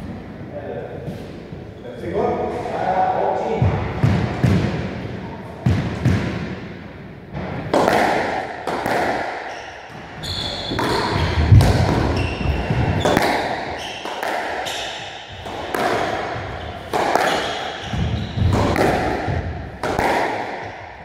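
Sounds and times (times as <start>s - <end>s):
squash ball cracking off racquets: 4.0s - 21.0s
shoes squeaking on wooden floor: 9.5s - 18.8s.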